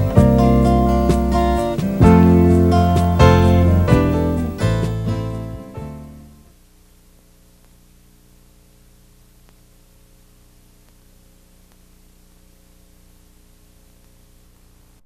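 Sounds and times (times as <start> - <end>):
low electrical hum: 0.0 - 15.0
tape hiss: 0.0 - 15.0
faint ticks: 9.4 - 9.7, 10.8 - 12.0, 13.9 - 14.7.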